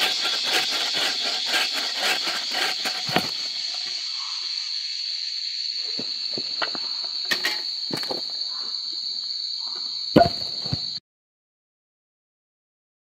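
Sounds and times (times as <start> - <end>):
knocks and rustles of logs: 0.0 - 4.0, 6.0 - 8.4, 10.2 - 11.0
forest insects droning: 0.0 - 11.0
heavy thump of log set down: 10.2 - 11.0.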